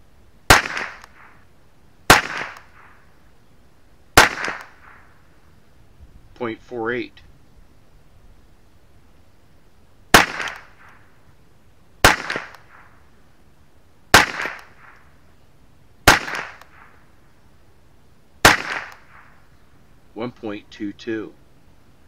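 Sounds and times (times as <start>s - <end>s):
rifle shots: 0.5s - 1.4s, 2.1s - 3.0s, 4.2s - 5.1s, 10.1s - 11.0s, 12.0s - 13.0s, 14.1s - 15.0s, 16.0s - 17.0s, 18.4s - 19.4s.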